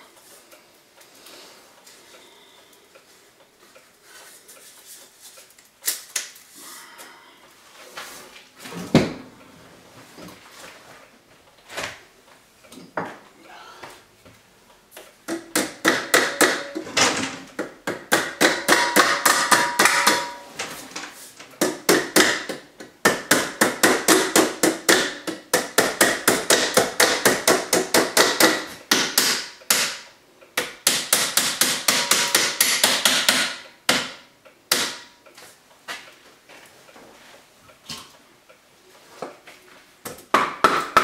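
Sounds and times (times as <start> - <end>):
hammer striking metal pipe: 15.3 - 17.0, 17.9 - 20.5, 30.8 - 35.1.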